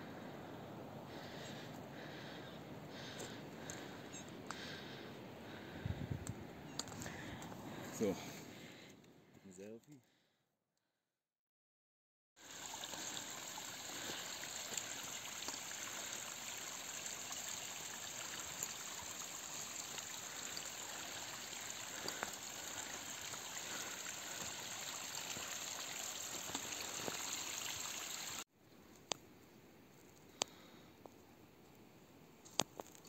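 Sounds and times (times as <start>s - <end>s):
stream trickling: 12.4s - 28.4s.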